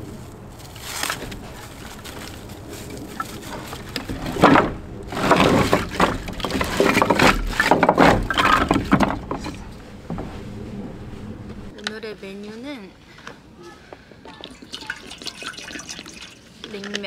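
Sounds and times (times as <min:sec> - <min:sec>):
firewood clattering on wooden deck: 0:00.9 - 0:10.2.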